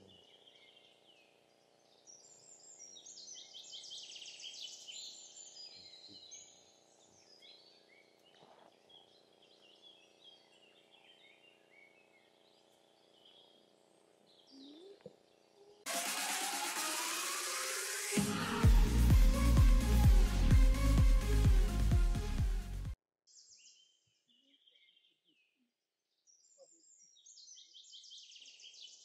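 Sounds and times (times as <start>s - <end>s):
birds singing: 0.0s - 15.8s, 23.3s - 29.0s.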